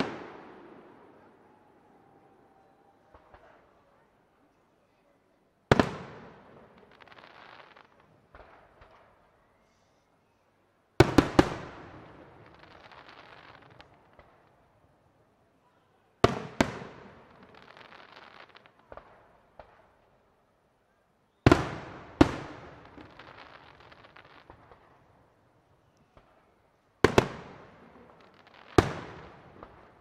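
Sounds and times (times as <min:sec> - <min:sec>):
firework crackling: 0:00.0 - 0:02.4, 0:05.7 - 0:09.0, 0:11.0 - 0:14.6, 0:16.3 - 0:20.0, 0:21.5 - 0:30.0.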